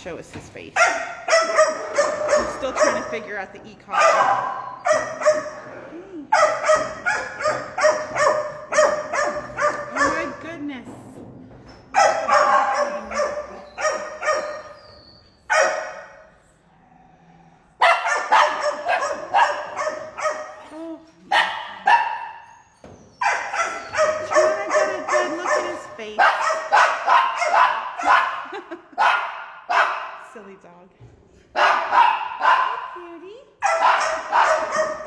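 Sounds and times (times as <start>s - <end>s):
dog barking: 0.8s - 3.2s, 3.9s - 5.6s, 6.3s - 10.4s, 11.9s - 14.7s, 15.5s - 16.2s, 17.8s - 20.6s, 21.3s - 22.5s, 23.2s - 30.2s, 31.6s - 32.9s, 33.6s - 35.0s.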